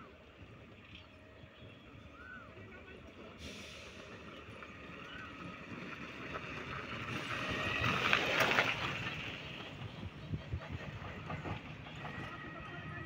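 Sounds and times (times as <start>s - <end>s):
electric rickshaw passing: 0.2s - 10.2s.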